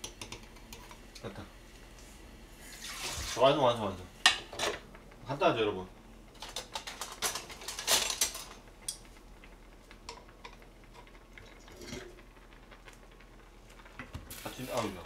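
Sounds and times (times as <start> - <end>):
kitchen handling sounds: 4.3 - 4.9, 6.4 - 8.6.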